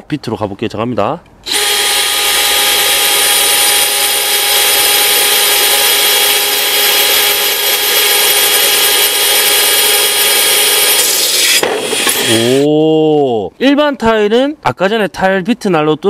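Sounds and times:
drill motor whine: 1.4s - 12.7s
bit grinding through tile: 1.5s - 12.7s.

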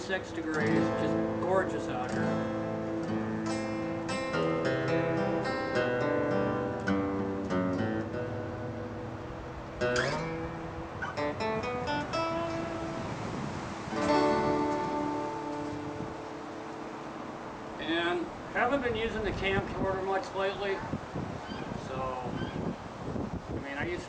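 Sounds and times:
acoustic guitar: 0.0s - 18.8s.

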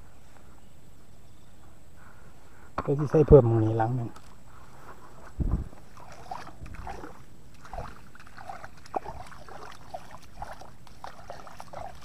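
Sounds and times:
low thuds: 5.4s - 5.8s
water sloshing and splashing: 5.6s - 12.0s.

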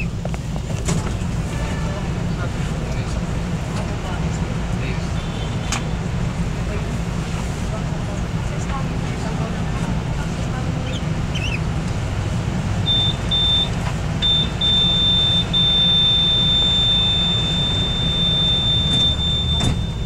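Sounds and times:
low rumble of standing train: 0.0s - 20.0s
door warning buzzer beeping: 12.9s - 20.0s.

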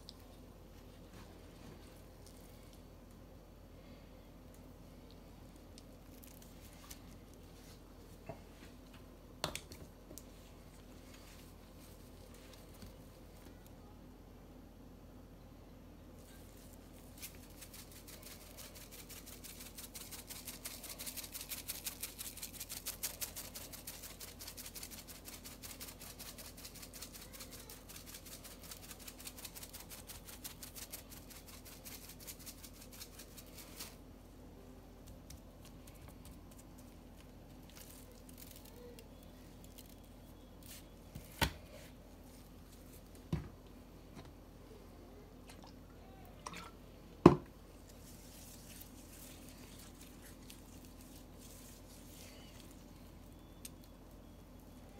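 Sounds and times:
shaker bottle rattling: 17.2s - 33.9s.

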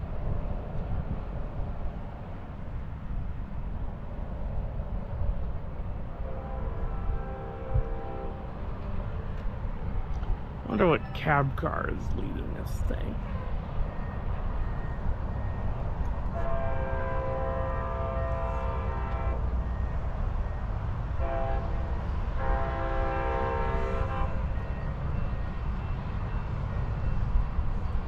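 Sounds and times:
multi-tone train horn blasts: 6.2s - 9.1s, 16.3s - 20.0s, 21.1s - 25.0s.

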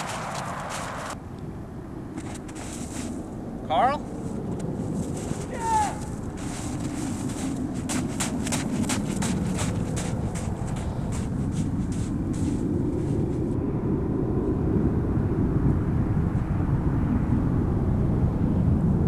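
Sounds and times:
running footsteps in snow: 0.0s - 1.2s, 2.2s - 3.3s, 4.1s - 13.6s
steady low rumble: 0.0s - 19.0s.

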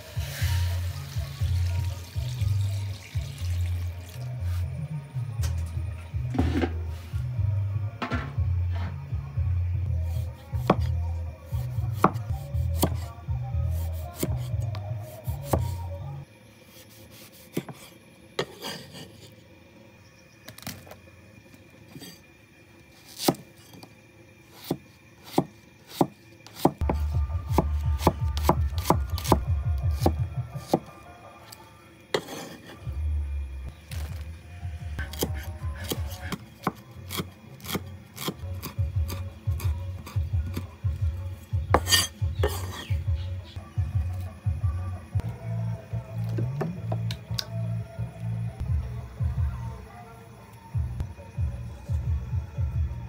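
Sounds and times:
background music with low bass: 0.0s - 16.3s, 26.8s - 31.2s, 38.3s - 53.0s
cleaver chopping on wooden board: 24.6s - 29.4s, 41.7s - 42.8s.

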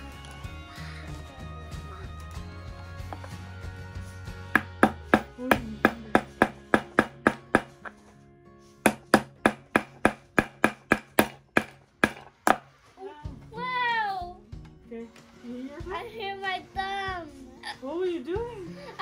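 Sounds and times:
quiet background music: 0.0s - 19.0s
small hammer striking wood: 4.6s - 8.0s, 8.9s - 12.7s.

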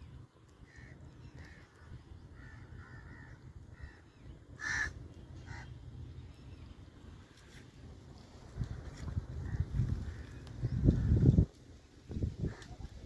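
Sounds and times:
low steady rumble: 0.0s - 12.9s
crows cawing: 0.6s - 5.8s.

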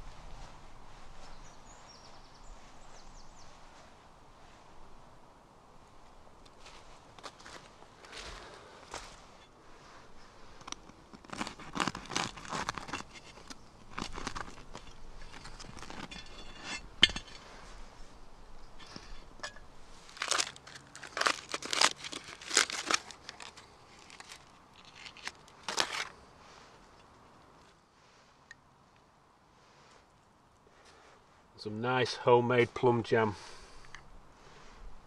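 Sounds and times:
bread crust crackling: 10.3s - 17.0s, 20.0s - 26.2s.

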